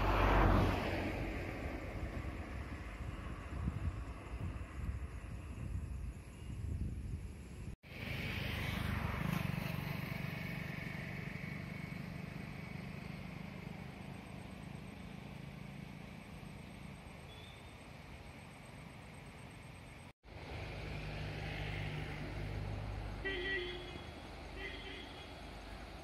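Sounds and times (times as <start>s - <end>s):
engine running: 7.8s - 26.0s.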